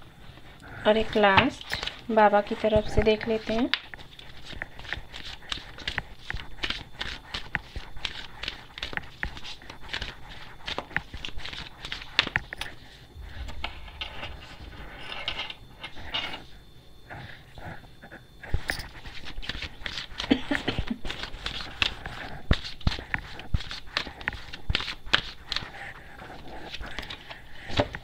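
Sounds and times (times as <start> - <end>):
cards being shuffled: 3.0 - 12.5, 19.0 - 28.0.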